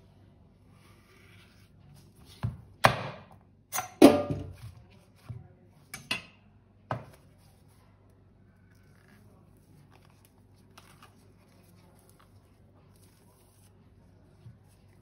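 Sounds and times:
kitchen utensils knocking and clinking: 3.8 - 4.6.

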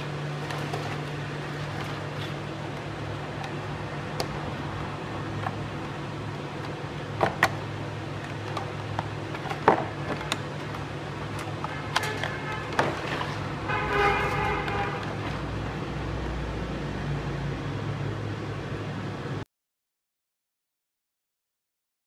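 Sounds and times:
steady low hum: 0.0 - 19.4
plastic clicks and crackles: 0.4 - 4.6, 5.3 - 13.4.

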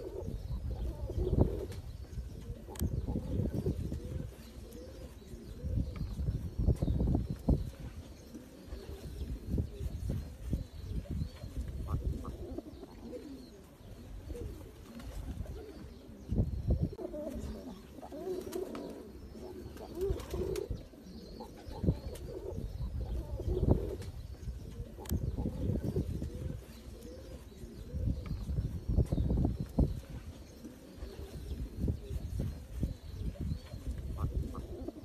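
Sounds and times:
pigeons cooing: 0.0 - 35.0.

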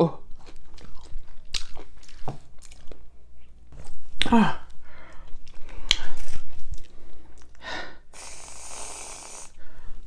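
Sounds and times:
breathing: 4.8 - 6.2, 6.8 - 8.2, 9.5 - 10.0
aerosol can hissing: 8.2 - 9.6.

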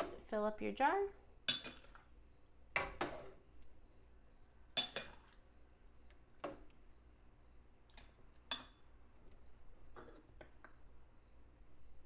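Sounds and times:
metal ladle clinking on pot: 4.8 - 5.3, 8.5 - 8.8.

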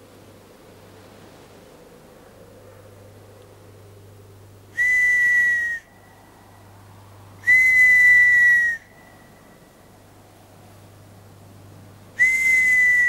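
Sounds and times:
long high whistle notes: 4.8 - 5.9, 7.4 - 9.1, 12.2 - 13.0.

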